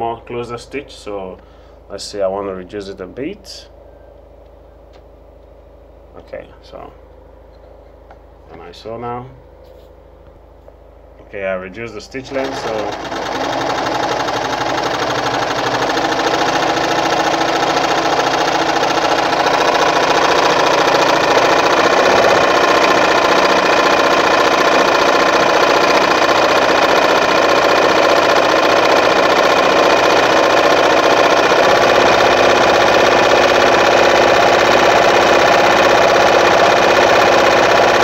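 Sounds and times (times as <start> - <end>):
sewing machine stitching: 12.2 - 38.0.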